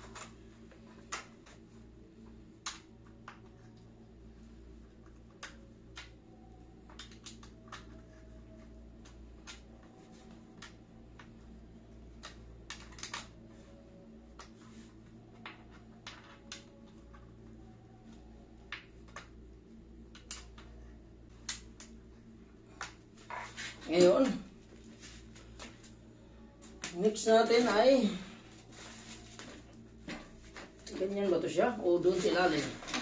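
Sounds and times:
steady low hum: 0.0s - 33.0s
plastic parts clicking and tapping: 6.8s - 8.2s, 12.1s - 13.6s.

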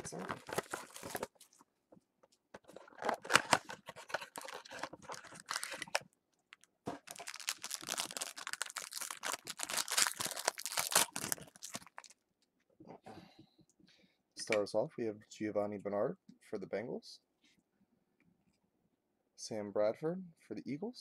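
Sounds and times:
card pack wrapper crinkling: 0.0s - 1.6s, 2.6s - 12.2s.

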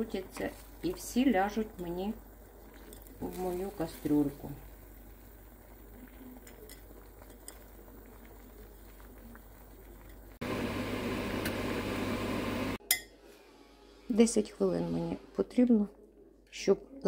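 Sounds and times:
water boiling in a pot: 0.0s - 12.8s.

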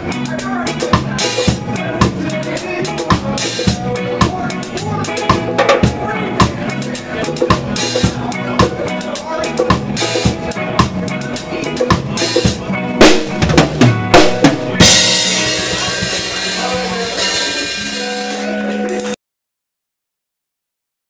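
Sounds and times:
drum kit hits: 9.6s - 19.2s
band holding a chord: 10.1s - 19.2s.

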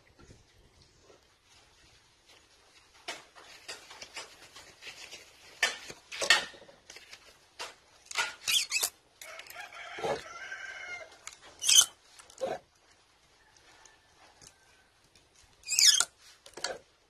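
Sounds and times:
wire scraping and rustling: 0.0s - 17.0s
rooster crowing: 9.2s - 11.2s.

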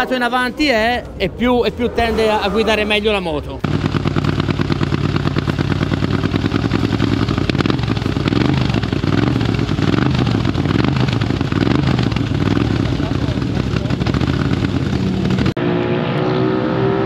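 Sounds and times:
motorcycle engine running: 3.3s - 15.6s.

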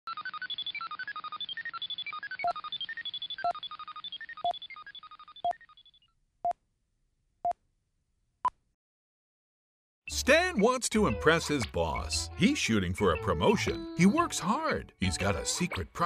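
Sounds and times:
fast electronic bleeps: 0.1s - 5.8s.

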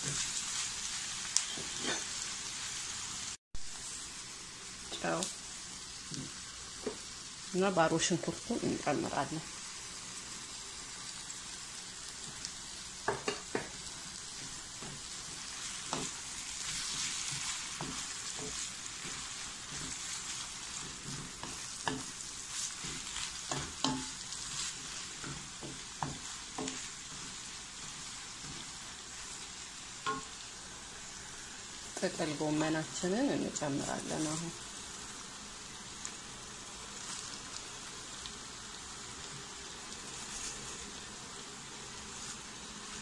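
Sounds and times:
wooden spoon scraping a pan: 0.0s - 2.2s, 13.1s - 30.4s, 40.0s - 41.0s
vegetables sizzling in a wok: 0.0s - 43.0s.

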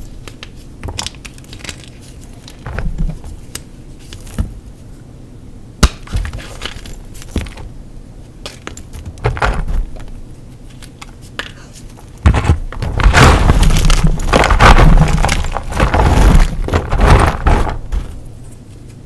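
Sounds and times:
chalk crunching and crackling: 9.8s - 19.0s.

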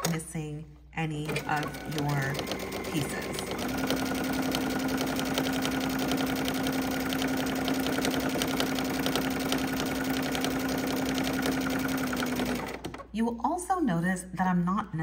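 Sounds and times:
sewing machine running: 1.2s - 13.0s.

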